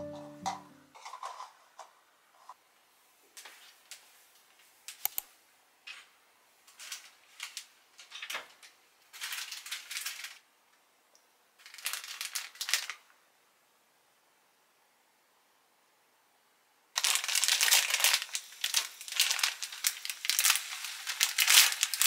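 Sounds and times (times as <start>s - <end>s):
rustling and crinkling: 0.9s - 2.6s, 3.3s - 5.0s, 5.8s - 10.4s, 11.6s - 13.0s, 17.0s - 22.0s.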